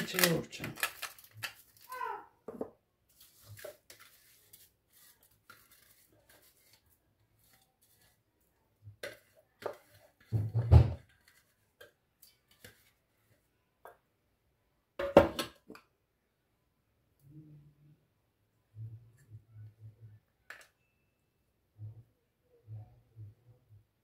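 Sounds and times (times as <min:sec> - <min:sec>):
spatula scraping plastic bowl: 0:03.1 - 0:13.4.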